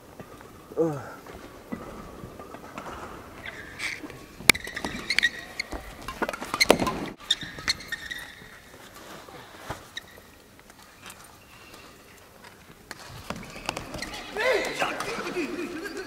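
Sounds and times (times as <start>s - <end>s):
shoes squeaking on court: 1.3s - 16.0s
racket hitting shuttlecock: 3.5s - 8.5s.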